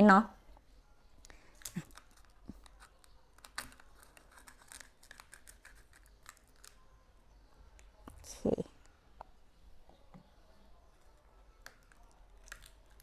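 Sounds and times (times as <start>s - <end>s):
light clicks and crinkling: 1.2s - 6.8s, 11.1s - 13.0s.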